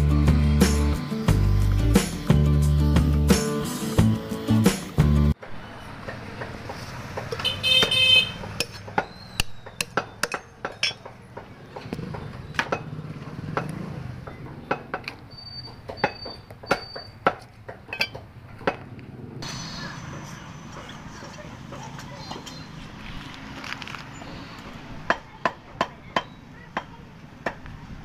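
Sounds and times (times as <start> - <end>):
street traffic: 0.0 - 28.0
vehicle horn: 7.4 - 8.5.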